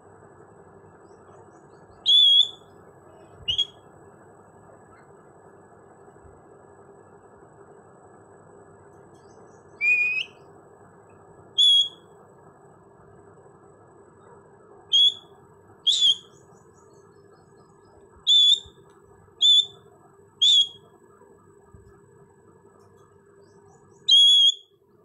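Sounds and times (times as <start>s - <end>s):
parakeet high-pitched calls: 2.0s - 3.9s, 9.8s - 10.4s, 11.6s - 12.0s, 14.9s - 15.3s, 15.9s - 16.4s, 18.3s - 18.8s, 19.4s - 19.8s, 20.4s - 20.9s, 24.1s - 24.7s.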